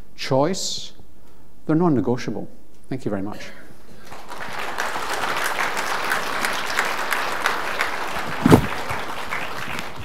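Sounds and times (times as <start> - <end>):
audience applauding: 4.0 - 10.0
loud thump: 8.4 - 8.7.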